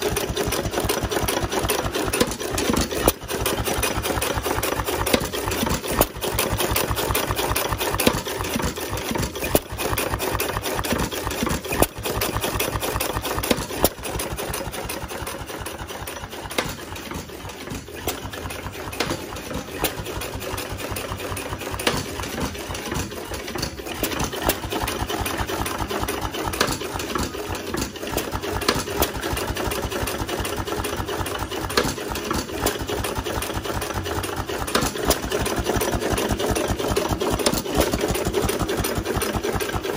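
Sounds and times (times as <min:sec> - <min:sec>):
hit-and-miss engine clattering: 0:00.0 - 0:39.9.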